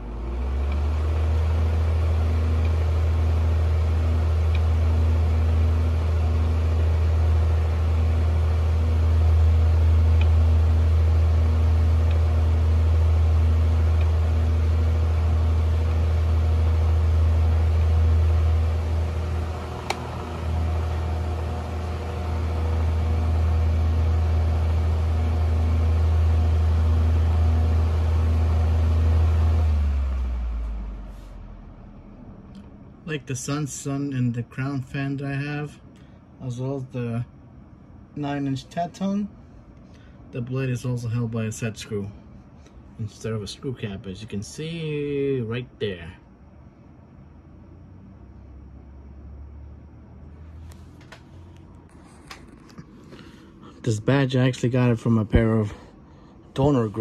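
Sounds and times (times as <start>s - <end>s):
table fan running: 0.0s - 57.0s
small click: 19.8s - 20.1s.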